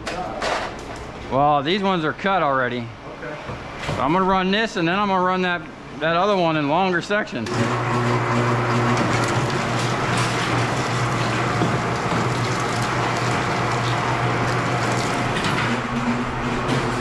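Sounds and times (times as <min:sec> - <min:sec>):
wire-stripping machine running: 0:07.5 - 0:17.0.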